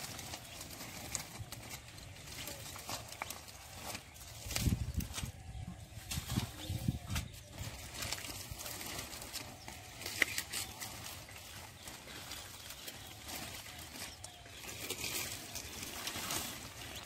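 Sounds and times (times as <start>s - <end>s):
leaves rustling and crackling: 0.0s - 17.0s.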